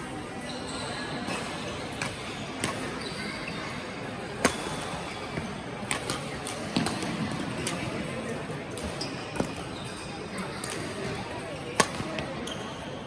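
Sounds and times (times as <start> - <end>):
sports hall hubbub: 0.0 - 13.0
racquets hitting shuttlecock: 1.3 - 2.9, 4.4 - 8.0, 10.6 - 12.7.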